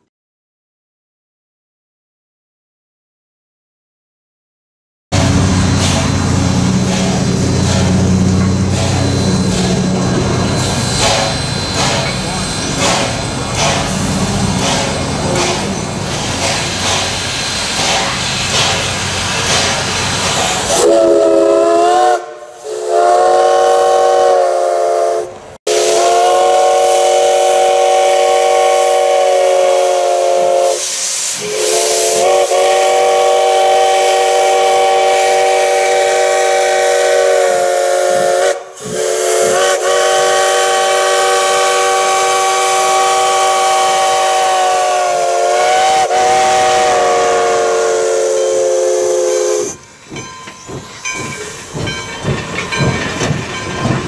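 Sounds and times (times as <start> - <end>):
steam hissing: 5.2 - 54.0
locomotive chime whistle blasts: 8.9 - 13.1, 20.7 - 49.9.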